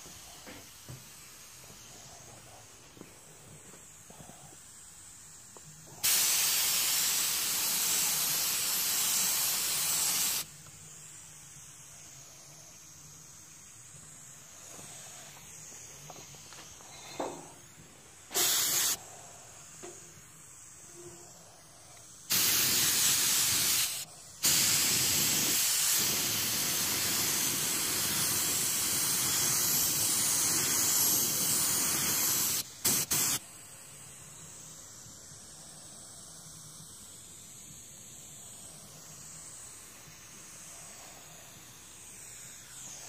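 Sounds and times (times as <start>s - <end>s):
paint spray gun hissing: 0.0s - 43.0s.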